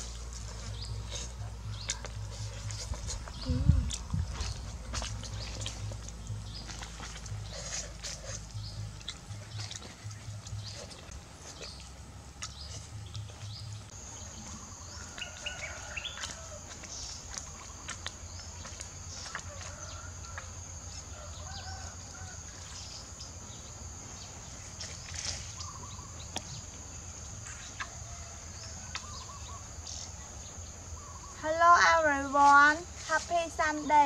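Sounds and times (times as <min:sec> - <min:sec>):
bird chirps: 0:21.4 - 0:28.0, 0:28.7 - 0:31.9.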